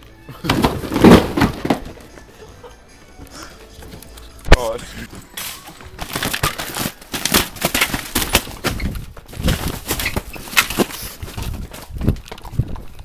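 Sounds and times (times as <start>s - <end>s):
rustling plastic: 5.4s - 13.0s.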